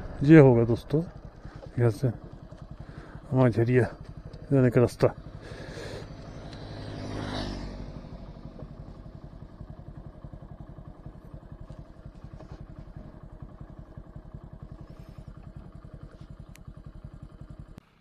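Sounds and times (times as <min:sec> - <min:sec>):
motorcycle engine idling: 0:00.0 - 0:18.0
vehicle passing by: 0:05.3 - 0:09.5.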